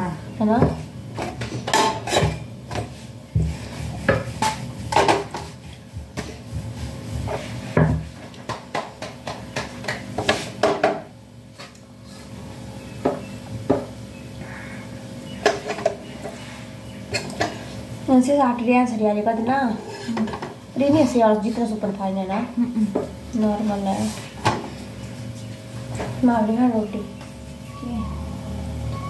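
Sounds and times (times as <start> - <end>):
pots and utensils clinking: 1.2 - 3.0, 4.0 - 5.6, 15.4 - 16.4, 17.0 - 17.7.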